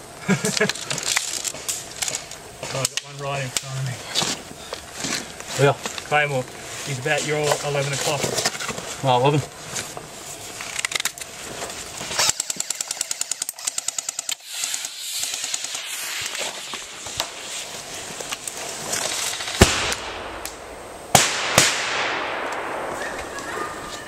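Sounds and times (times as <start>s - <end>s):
airsoft gun full-auto burst: 12.2s - 16.3s
grenade bangs with hiss: 14.0s - 23.8s.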